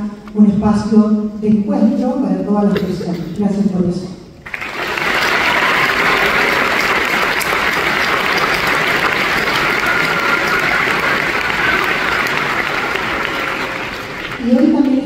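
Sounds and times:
audience applauding: 4.4 - 15.0.

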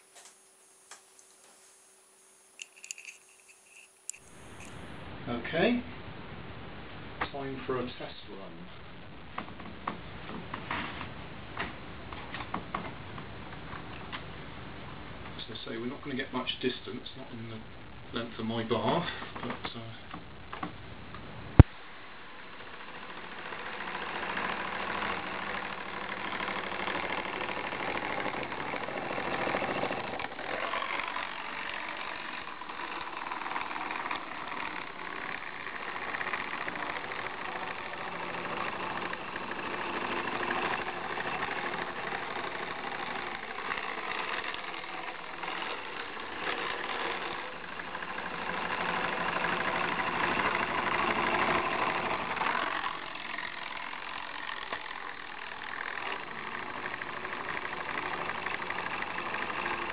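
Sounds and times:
toothbrush motor buzzing and rattling: 0.0 - 5.0, 22.8 - 59.9.

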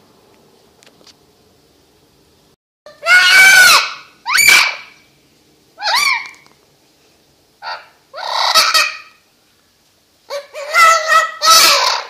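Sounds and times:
parrot screeching: 2.9 - 5.0, 5.8 - 6.4, 7.6 - 9.2, 10.3 - 12.0.

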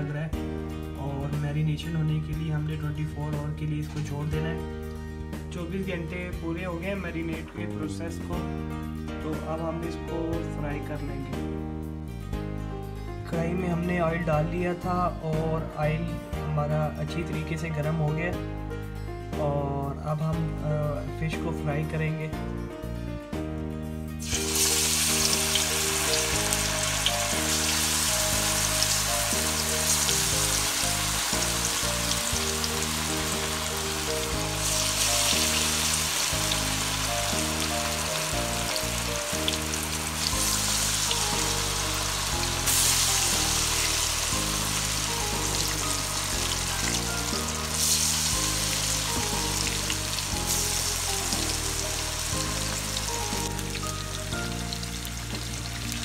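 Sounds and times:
background music low notes: 0.0 - 56.0
fish deep-frying in oil: 24.2 - 56.0.

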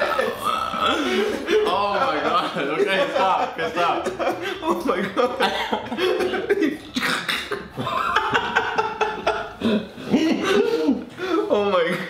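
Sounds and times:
young men laughing: 0.0 - 12.0
young men coughing: 5.3 - 11.5.

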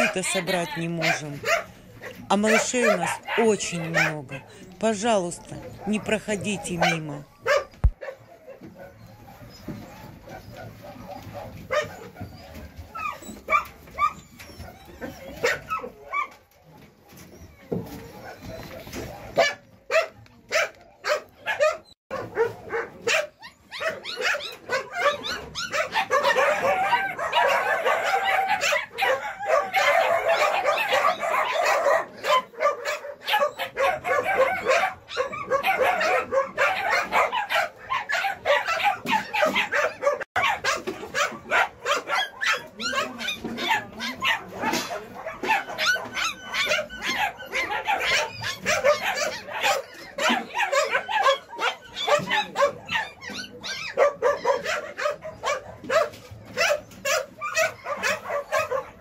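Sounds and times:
puppies squealing and yelping: 0.0 - 59.0.

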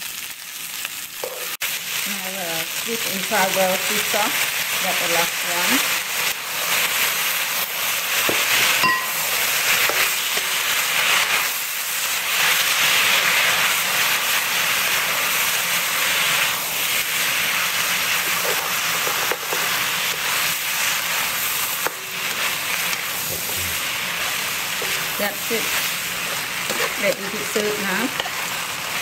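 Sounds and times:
noodles sizzling in a wok: 0.0 - 29.0.

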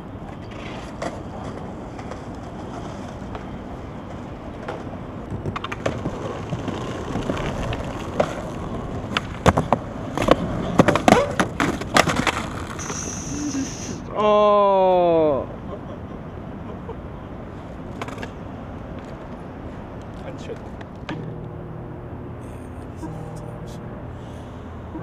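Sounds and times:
skateboard wheels rolling on concrete: 0.0 - 14.1, 15.4 - 22.1
skateboard deck clacking on ground: 0.2 - 12.9, 17.9 - 18.4.

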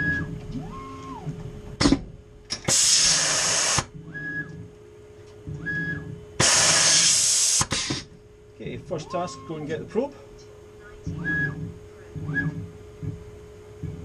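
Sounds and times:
motor whines: 0.0 - 1.5, 5.5 - 8.0, 10.8 - 14.0
sharp mechanical clunks: 0.0 - 2.8
compressed air hissing blasts: 2.6 - 3.9, 6.4 - 8.2.

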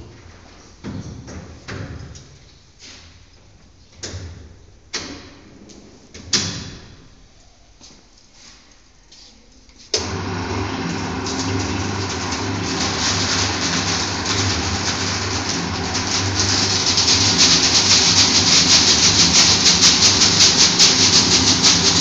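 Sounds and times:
tape slitting machine running: 10.0 - 22.0.

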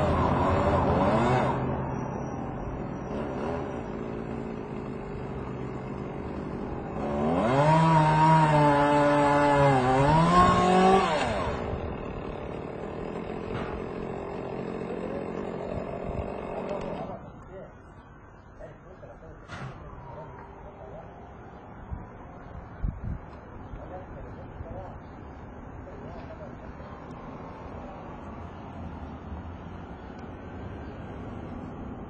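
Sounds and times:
chainsaw engine revving: 0.0 - 1.7, 3.1 - 17.2.

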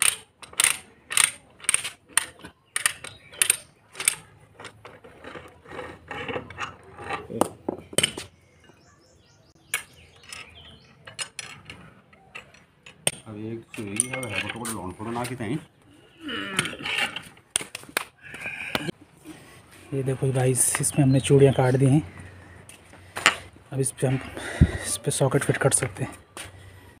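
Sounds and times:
ratchet clicking: 0.0 - 4.2.

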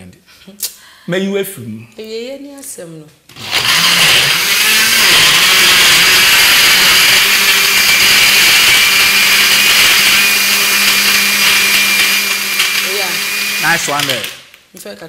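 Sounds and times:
blender motor whirring: 3.3 - 14.6.

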